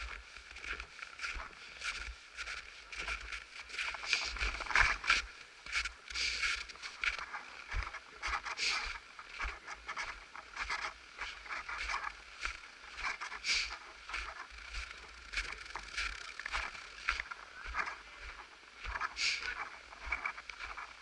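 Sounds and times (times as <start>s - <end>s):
footsteps crunching on snow: 0.0s - 21.0s.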